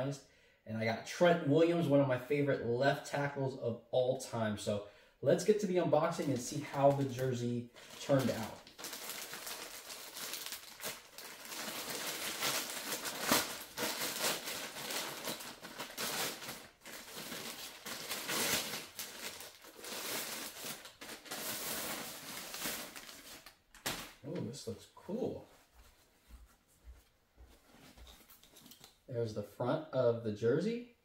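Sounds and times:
plastic mailer bag crinkling: 6.1s - 24.2s.

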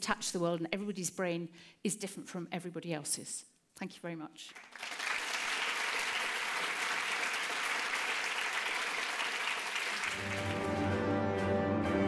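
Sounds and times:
audience applauding: 4.5s - 11.1s
music: 10.0s - 12.0s.

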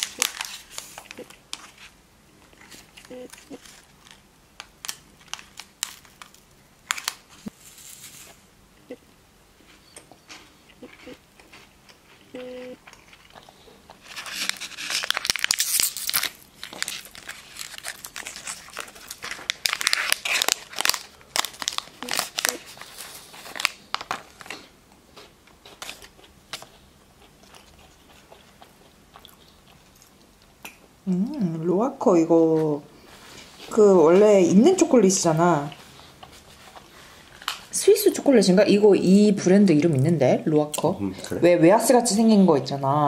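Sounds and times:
wrapper crackling and rustling: 0.0s - 8.4s, 14.0s - 24.7s.

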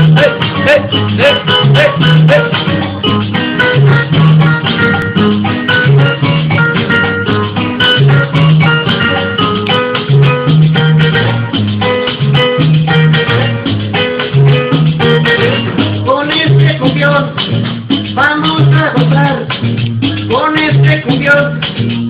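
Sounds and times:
person singing: 0.0s - 5.1s, 15.0s - 21.8s
salsa dance music: 0.0s - 22.0s.

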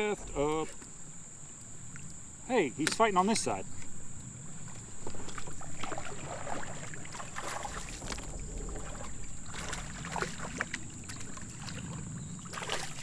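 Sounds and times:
water and hull noise: 0.0s - 2.3s, 3.4s - 13.0s
fish splashing: 5.0s - 13.0s.

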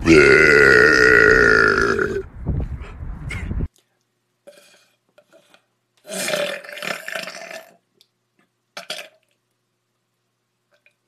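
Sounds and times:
man burping loudly: 0.0s - 2.3s, 6.1s - 7.8s.

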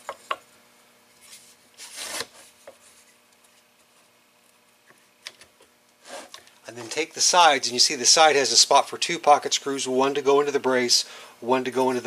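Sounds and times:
wood rubbing on wood: 6.0s - 7.0s.

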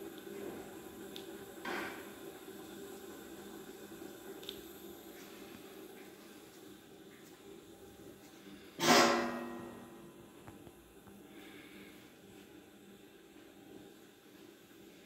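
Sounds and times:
faint steady autoclave sound: 0.0s - 15.0s.

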